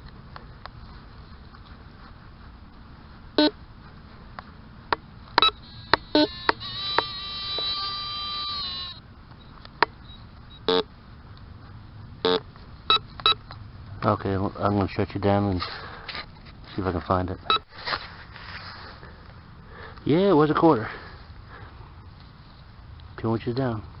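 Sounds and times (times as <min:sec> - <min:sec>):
metal detector steady tone: 0:03.4 - 0:03.6, 0:04.9 - 0:10.9, 0:12.2 - 0:13.5, 0:17.4 - 0:17.7
metal detector beeps: 0:05.4 - 0:10.9, 0:12.2 - 0:13.4, 0:17.4 - 0:17.7.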